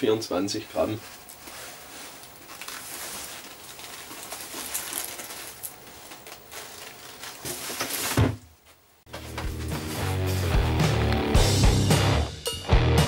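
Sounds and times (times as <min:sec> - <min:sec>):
plastic wrap crinkling: 0:00.6 - 0:10.3.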